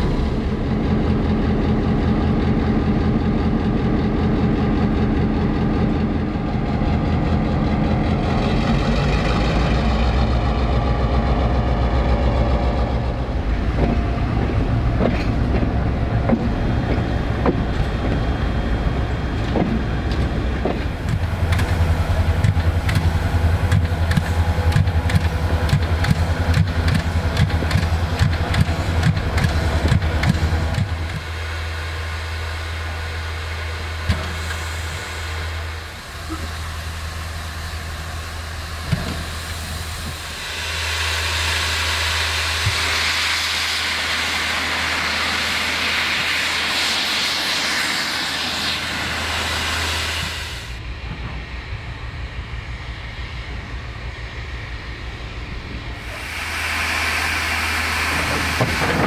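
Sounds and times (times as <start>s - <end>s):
loud hiss of steam: 20.3s - 59.0s.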